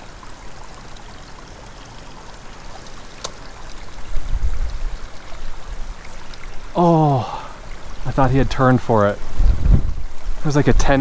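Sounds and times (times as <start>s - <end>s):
wind on microphone: 4.0s - 5.5s, 9.2s - 11.0s
low buffeting gust: 9.1s - 10.4s.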